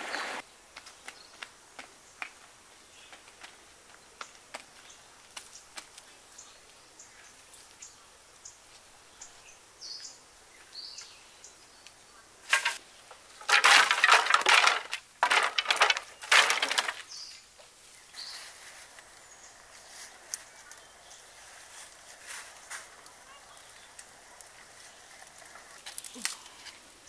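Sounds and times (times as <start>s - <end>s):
dry twigs snapping and crunching: 13.4s - 17.1s, 18.8s - 26.9s.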